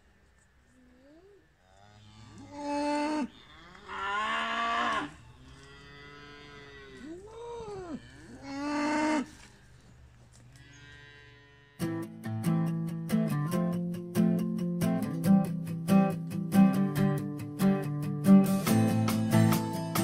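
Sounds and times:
cattle mooing: 1.7 - 9.7, 10.6 - 12.0
guitar music: 11.8 - 20.0.

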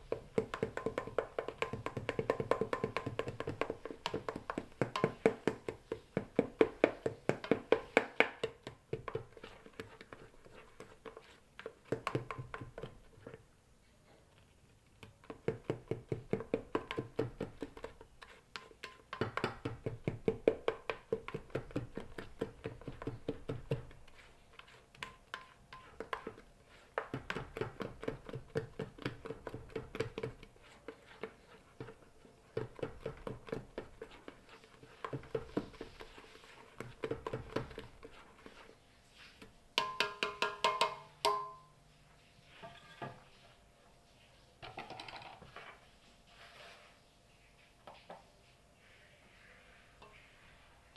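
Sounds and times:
utensil beating batter in metal bowl: 0.0 - 13.6, 14.3 - 41.6.

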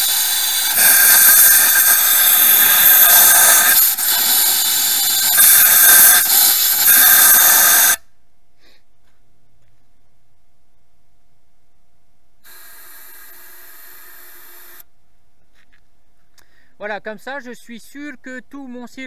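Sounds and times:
compressed air hissing: 0.0 - 8.0, 12.4 - 14.9.

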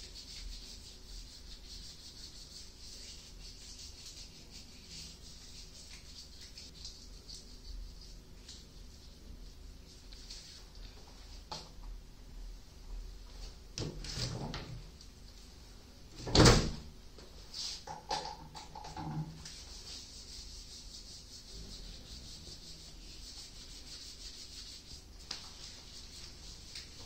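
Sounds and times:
gloved hands rubbing: 0.0 - 10.7, 19.4 - 27.0.

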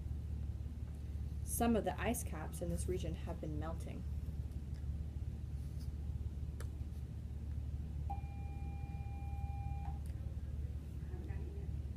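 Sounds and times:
steady low hum: 0.0 - 11.9.

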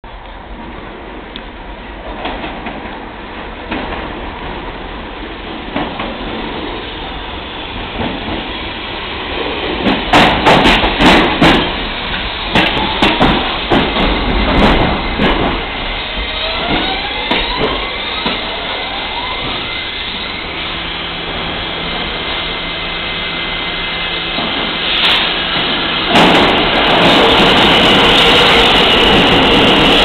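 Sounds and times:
subway train pulling in: 0.1 - 30.0
wheels clattering over rail joints: 9.4 - 18.6
rising whine: 14.8 - 30.0.

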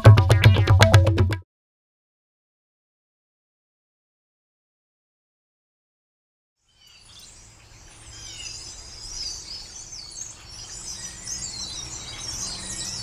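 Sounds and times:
songbirds chirping and trilling: 6.6 - 13.0.

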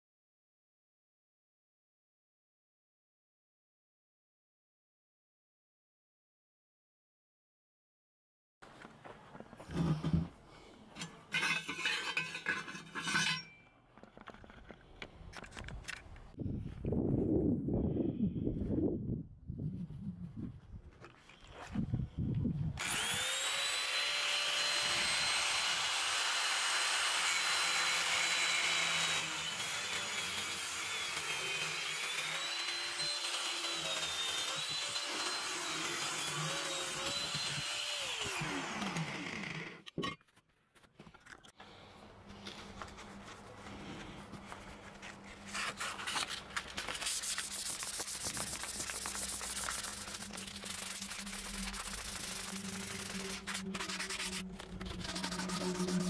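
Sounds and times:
angle grinder cutting steel pipe: 11.0 - 13.6, 22.8 - 39.9, 47.3 - 56.0
hands sanding pipe: 46.9 - 56.0.

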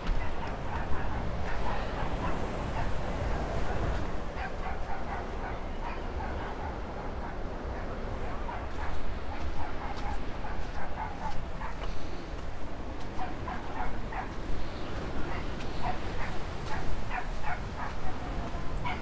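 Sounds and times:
wind rumble on microphone: 0.0 - 19.0
dog barking and yipping: 4.4 - 11.8, 13.1 - 14.4, 15.3 - 19.0.

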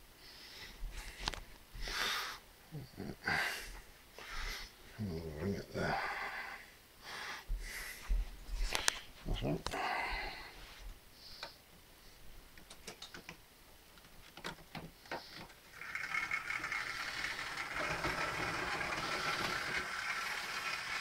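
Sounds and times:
model train whirring and rattling: 15.6 - 21.0.

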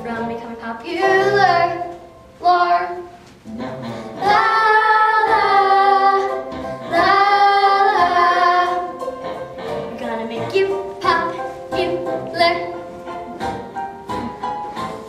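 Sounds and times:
girl singing: 0.0 - 3.2, 4.2 - 9.0, 9.9 - 12.9.

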